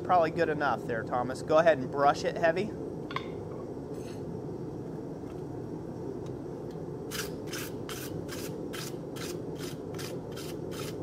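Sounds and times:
wire brush scrubbing steel: 7.1s - 11.0s.

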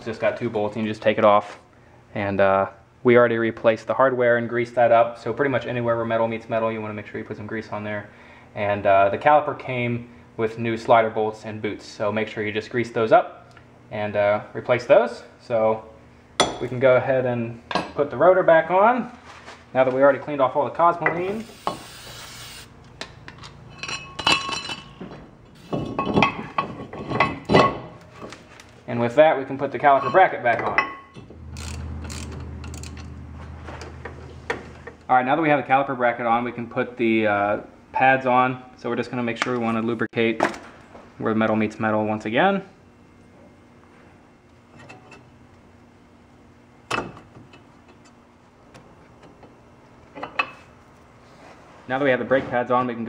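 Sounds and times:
metal clinks and knocks: 23.3s - 27.9s.

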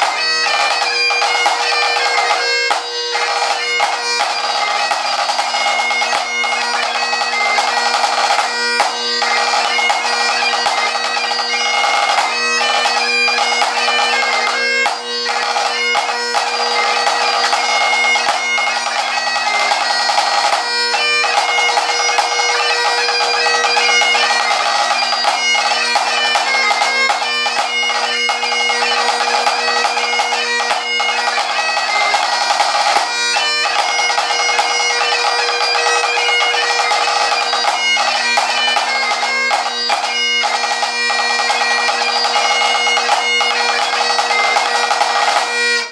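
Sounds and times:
bagpipe playing a march: 0.0s - 45.9s
snare drum strokes and rolls: 23.2s - 33.1s.

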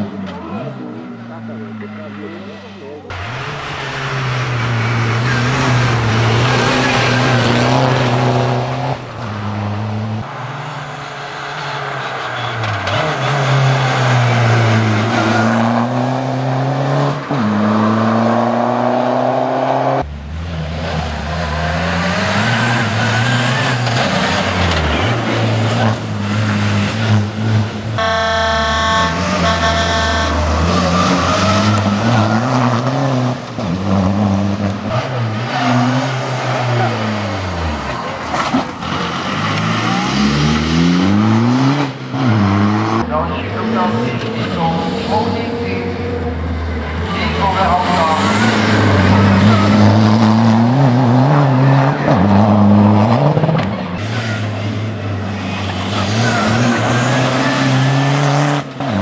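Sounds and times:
rally car engine revving past: 1.5s - 59.0s
brief high tone: 28.0s - 30.5s.

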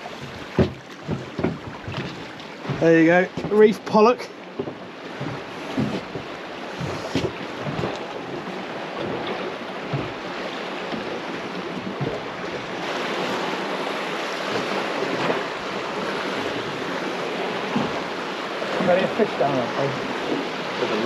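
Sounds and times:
light knocks on boat: 0.0s - 13.3s, 16.4s - 19.0s
waves rushing: 0.0s - 21.0s.

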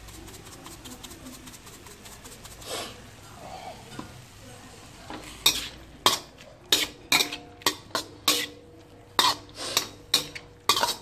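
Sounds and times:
metal spatula clanking on wok: 5.4s - 8.6s, 9.2s - 11.0s.

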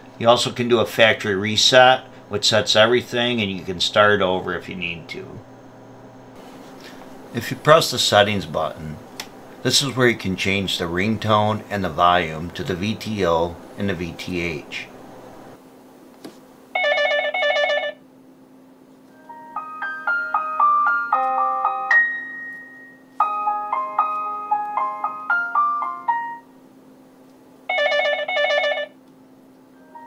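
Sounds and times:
faint steady hum: 0.0s - 30.0s
simple synthesized melody: 19.2s - 26.5s, 29.8s - 30.0s.

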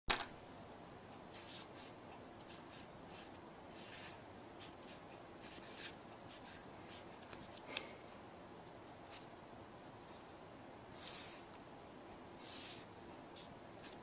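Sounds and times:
pen scratching on paper: 1.4s - 7.0s, 11.0s - 11.4s, 12.4s - 14.0s.

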